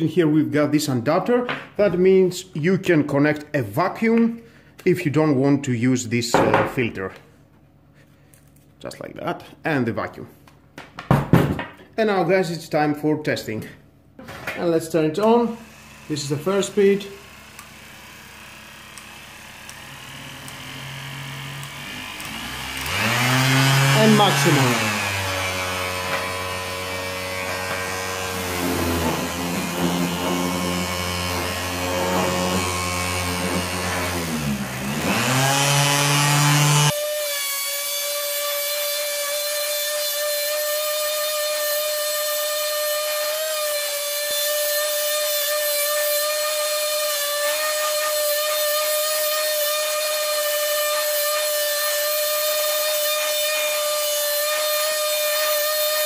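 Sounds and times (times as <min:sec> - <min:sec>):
orbital sander sanding wood: 0:14.7 - 0:56.0.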